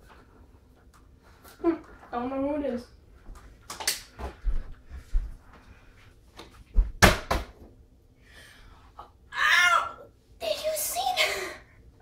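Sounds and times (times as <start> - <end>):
footsteps on floor: 4.1 - 7.0
plastic bottle hitting down: 6.8 - 7.6.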